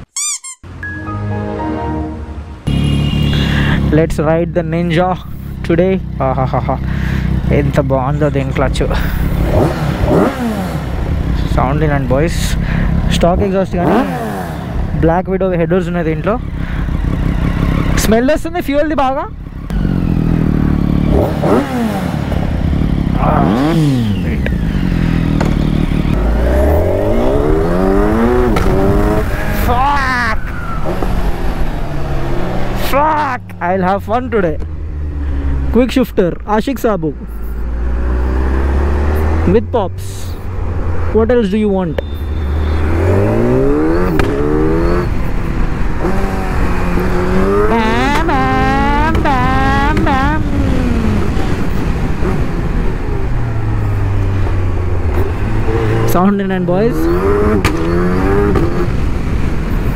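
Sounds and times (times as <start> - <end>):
motorcycle engine revving: 2.6 - 18.2, 19.3 - 35.9, 37.4 - 39.8, 40.4 - 59.9.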